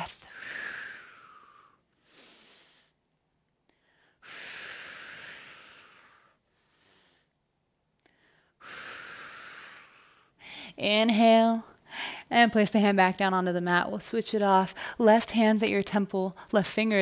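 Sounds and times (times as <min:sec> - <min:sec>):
woman breathing deeply: 0:00.2 - 0:03.0, 0:03.7 - 0:07.3, 0:08.0 - 0:10.8.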